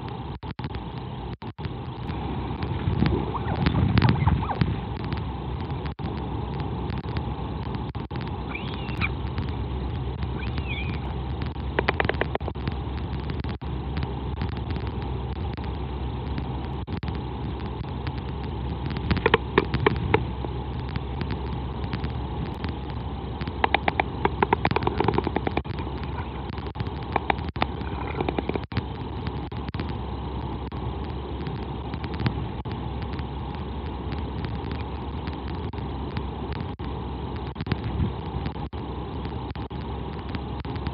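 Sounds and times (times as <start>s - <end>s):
wind noise on microphone: 0.0s - 40.9s
rapid clacking: 6.9s - 15.6s, 16.4s - 30.0s.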